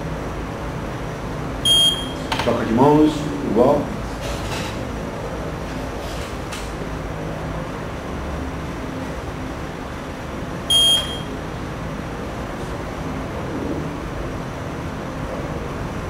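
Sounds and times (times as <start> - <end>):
low room hum: 0.0 - 16.0
short electronic beep: 1.7 - 2.2, 10.7 - 11.4.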